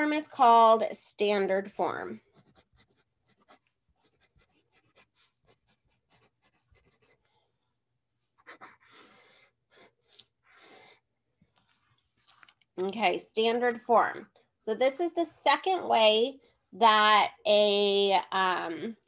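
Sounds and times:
pencil scratching on paper: 1.5 - 7.4.

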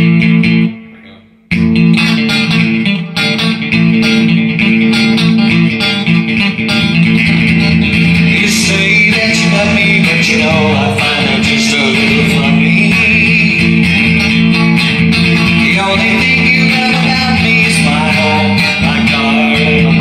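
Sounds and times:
electric guitar chords: 0.0 - 20.0.

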